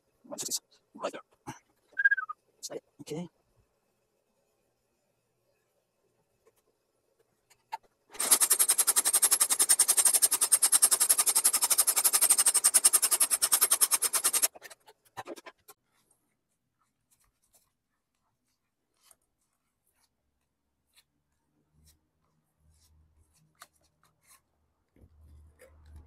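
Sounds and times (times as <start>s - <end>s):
stitching machine running: 8.2s - 14.5s.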